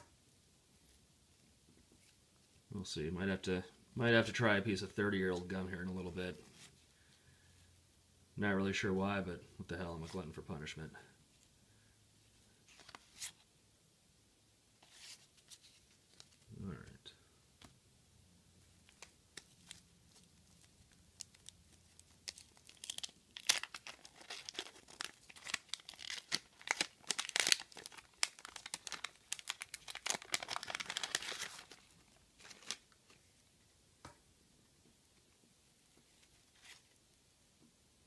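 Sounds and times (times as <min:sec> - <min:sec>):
wax paper wrapper crinkling: 0:12.6 - 0:13.4, 0:14.8 - 0:16.5, 0:18.7 - 0:33.5, 0:35.8 - 0:37.0.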